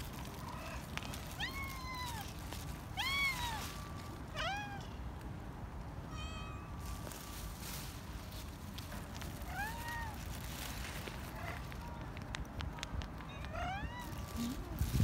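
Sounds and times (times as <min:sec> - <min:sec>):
cats meowing: 0:00.1 - 0:05.0, 0:09.4 - 0:10.4, 0:13.2 - 0:15.0.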